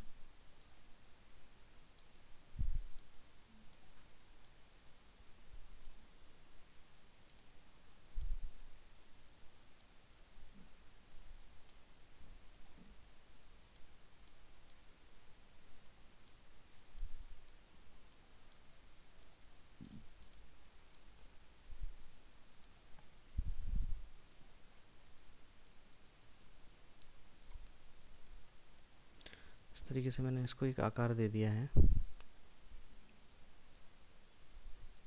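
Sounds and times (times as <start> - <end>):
computer mouse clicking: 2.0 - 2.3, 3.7 - 4.6, 7.3 - 7.5, 13.7 - 14.8, 17.0 - 21.1, 26.4 - 29.4.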